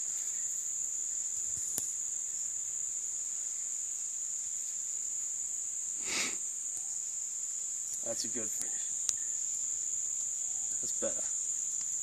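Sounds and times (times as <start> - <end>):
high-pitched insect chorus: 0.0 - 12.0
faint click: 1.6 - 1.9.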